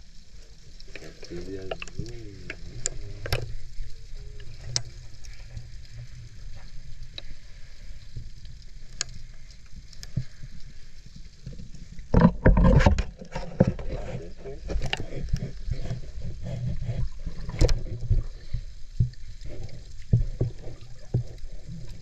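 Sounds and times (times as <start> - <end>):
underwater low rumble: 0.0 - 22.0
water sloshing and splashing: 0.0 - 22.0
sharp underwater clicks: 0.7 - 10.4, 14.7 - 22.0.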